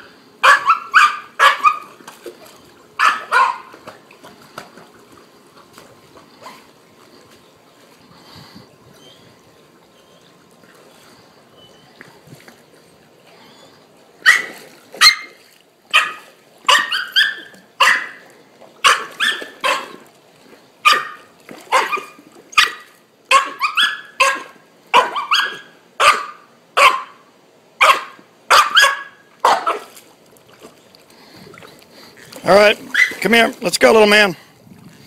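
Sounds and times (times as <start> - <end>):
puppy yapping: 0.4 - 2.0, 3.0 - 3.8, 14.2 - 18.2, 18.8 - 20.0, 20.8 - 27.2, 27.8 - 29.9, 32.8 - 33.2.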